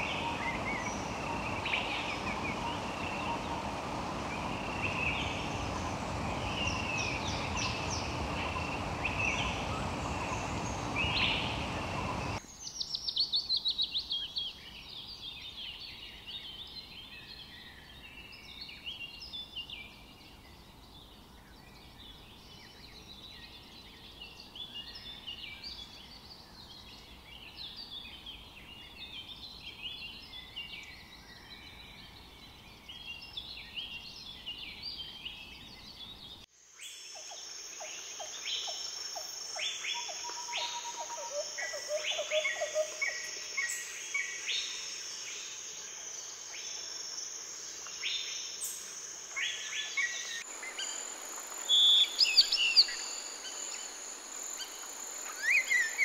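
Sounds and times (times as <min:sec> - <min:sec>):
birds chirping: 0:00.0 - 0:12.4
loud whistled bird chirps: 0:51.7 - 0:54.0, 0:54.6 - 0:56.0.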